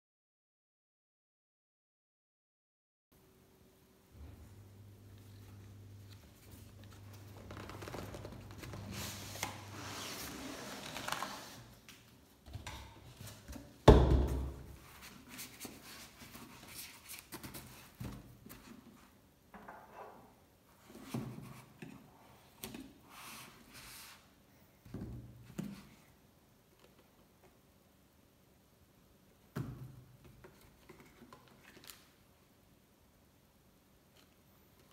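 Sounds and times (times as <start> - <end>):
cardboard scraping and sliding: 6.1 - 11.8.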